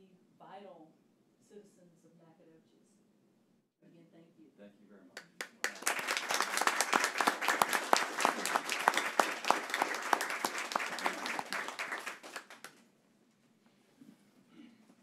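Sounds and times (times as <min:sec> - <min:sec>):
small group applause: 0:05.2 - 0:12.8.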